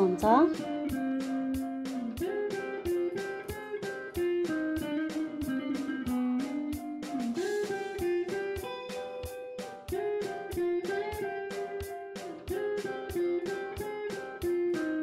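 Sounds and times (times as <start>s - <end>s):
melody over quick steady beat: 0.0s - 14.8s.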